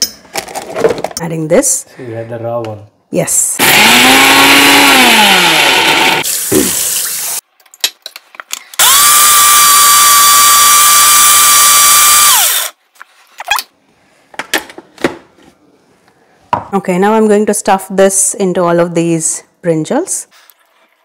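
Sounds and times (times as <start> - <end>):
mixer grinder whining: 3.6 - 7.4, 8.8 - 12.8.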